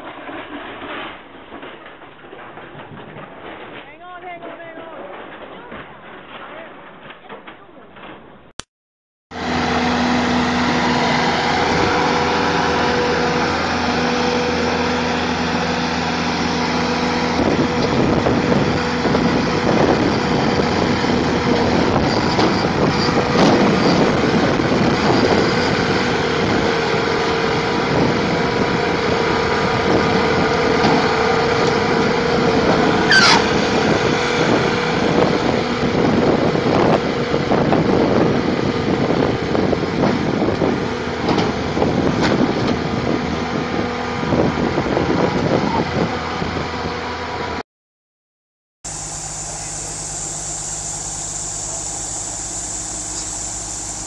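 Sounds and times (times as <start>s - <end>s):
loader diesel engine running: 9.4s - 47.6s, 48.8s - 54.0s
sharp falling squeal: 33.0s - 33.6s.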